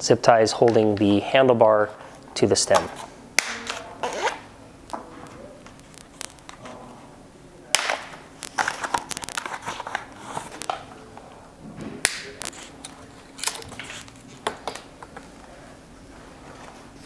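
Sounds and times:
plastic packaging rustling: 5.0s - 6.8s, 8.0s - 11.0s, 12.2s - 15.1s.

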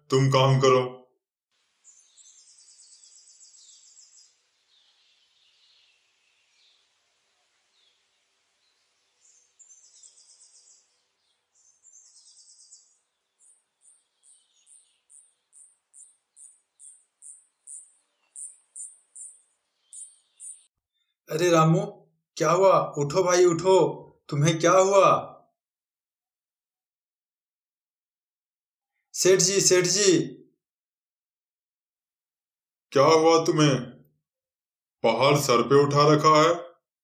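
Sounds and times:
falling bird chirps: 1.8s - 20.7s.

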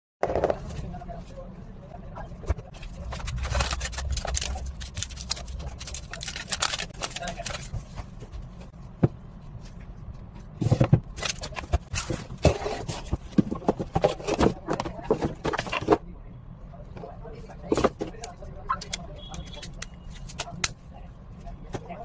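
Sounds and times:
packaging scraping and rustling: 2.7s - 8.0s, 11.2s - 16.0s.

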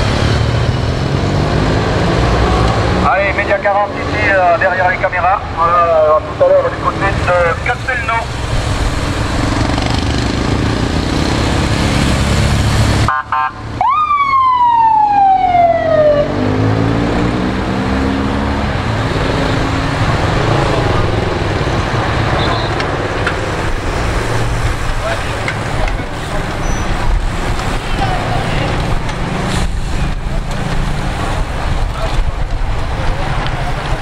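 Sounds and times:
rumble of vehicle engines: 0.0s - 34.0s
siren sweeping down in pitch: 13.1s - 17.2s.

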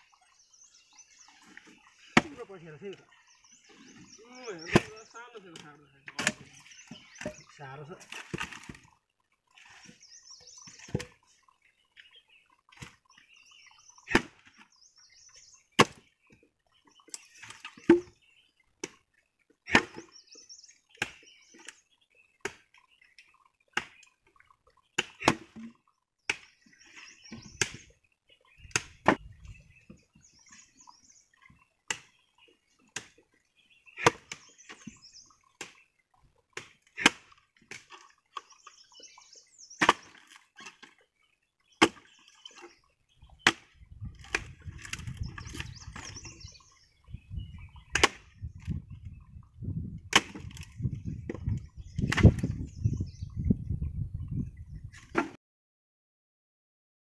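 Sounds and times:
axe chopping wood: 2.2s - 2.4s, 4.7s - 5.0s, 6.1s - 6.6s, 10.9s - 11.2s, 14.1s - 14.5s, 15.8s - 16.1s, 17.4s - 18.2s, 19.7s - 20.1s, 21.0s - 21.3s, 25.0s - 25.7s, 27.4s - 27.9s, 28.7s - 29.3s, 31.9s - 32.1s, 33.0s - 33.2s, 34.0s - 34.9s, 36.6s - 37.9s, 39.8s - 40.8s, 41.8s - 42.1s, 43.4s - 46.2s, 47.9s - 48.8s, 50.1s - 50.7s, 51.3s - 52.6s.

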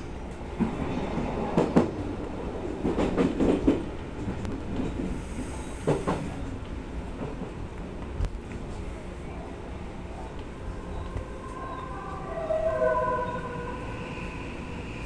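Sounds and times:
electric train rumbling: 0.0s - 15.0s
faint high-pitched squeal: 10.1s - 15.0s.

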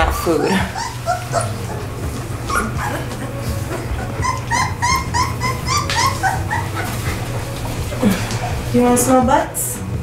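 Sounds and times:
puppy whimpering in high yips: 0.4s - 1.7s, 2.5s - 3.1s, 4.0s - 7.2s.

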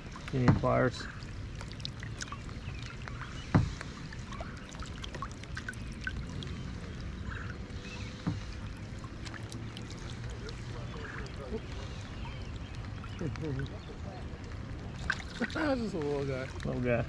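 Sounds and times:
rain falling on water: 0.0s - 17.0s
knock on kayak: 0.4s - 0.8s, 3.5s - 3.8s.

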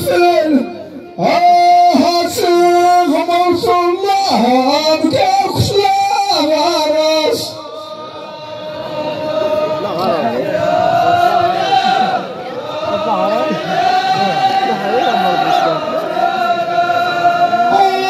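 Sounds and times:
group singing: 7.4s - 18.0s.

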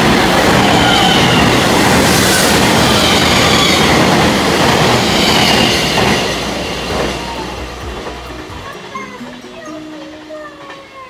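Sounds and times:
train wheels rushing on rail: 0.0s - 11.0s
thin high wheel squeal: 5.0s - 7.5s.

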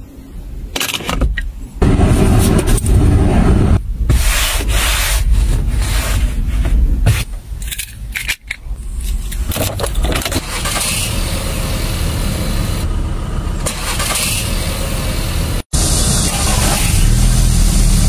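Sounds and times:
car engine running: 9.8s - 18.0s.

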